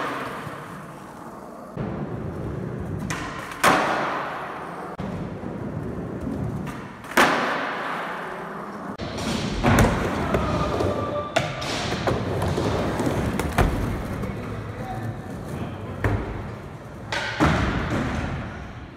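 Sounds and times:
skateboard wheels rolling on concrete: 0.0 - 11.2, 11.9 - 17.2
skateboard clacks: 2.9 - 5.0, 6.2 - 8.4.

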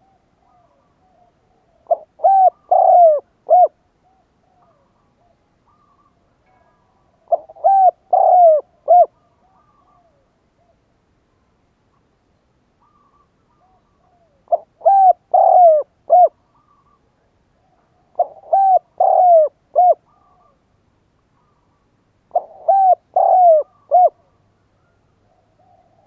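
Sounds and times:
dove cooing: 0.0 - 6.3, 7.0 - 10.8, 12.8 - 20.6, 21.4 - 26.0.

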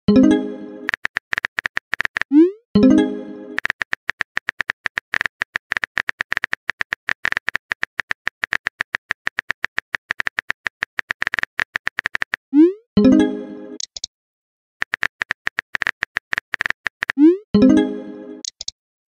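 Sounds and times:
keyboard typing clicks: 0.8 - 2.4, 3.6 - 12.4, 13.8 - 14.1, 14.8 - 17.3, 18.4 - 18.8.

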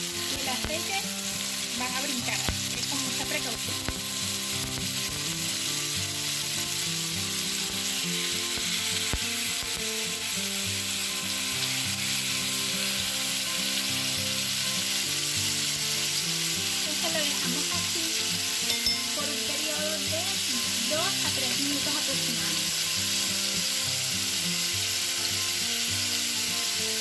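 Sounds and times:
fish sizzling in a pan: 0.0 - 27.0.

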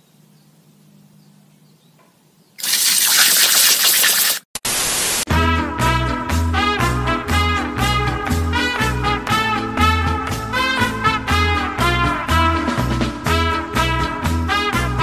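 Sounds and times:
hose spray hissing: 2.6 - 5.2
swing music: 5.3 - 15.0.

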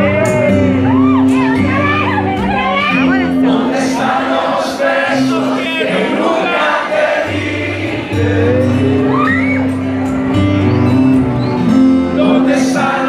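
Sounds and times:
bass guitar: 0.0 - 4.3, 7.3 - 13.0
person singing: 0.0 - 9.6, 12.0 - 13.0
acoustic-electric guitar: 0.0 - 13.0
live band music: 0.0 - 13.0.

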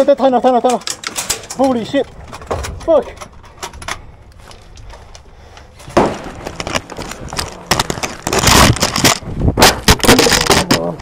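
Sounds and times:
scraping: 0.6 - 11.0
rustling: 0.7 - 11.0.

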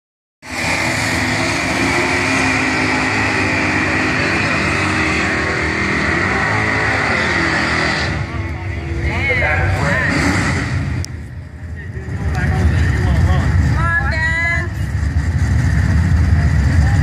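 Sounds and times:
high tyre screech: 0.4 - 11.3
car engines running hard: 0.4 - 17.0.

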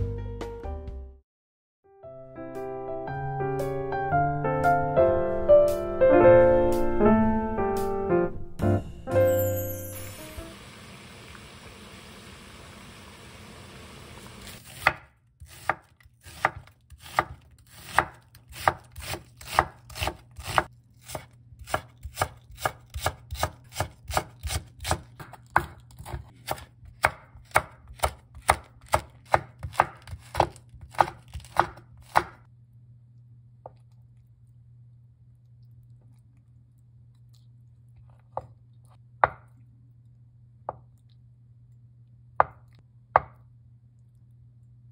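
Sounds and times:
pot bubbling at a boil: 10.5 - 14.4
knife chopping on wooden board: 14.5 - 32.5, 42.4 - 43.4.

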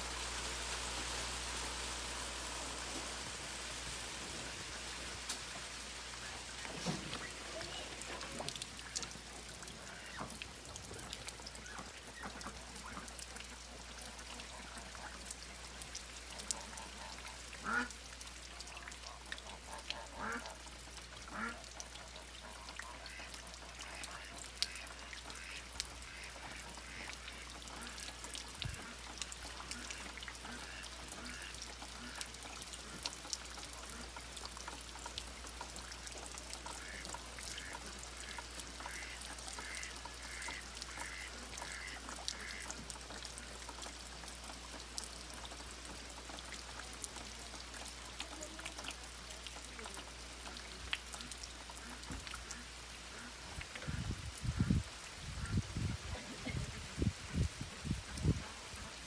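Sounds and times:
steady rain with drips: 0.0 - 59.0
waterfowl calling: 16.5 - 18.0, 36.6 - 42.8.

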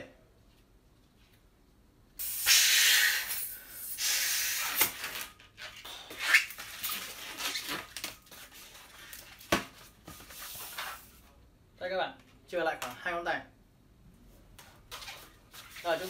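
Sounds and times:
blowing up balloon by mouth: 2.2 - 7.7
balloon latex squeaking: 2.3 - 8.2.

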